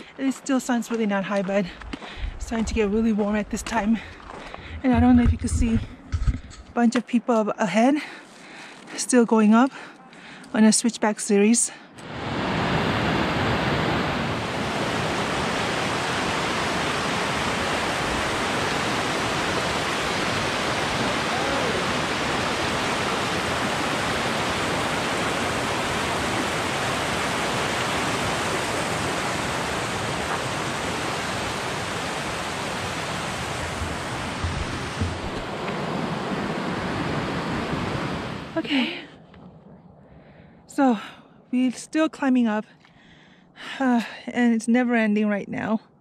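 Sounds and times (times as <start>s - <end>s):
water rushing over rocks: 12.0s - 38.6s
soft thumps: 33.6s - 35.5s.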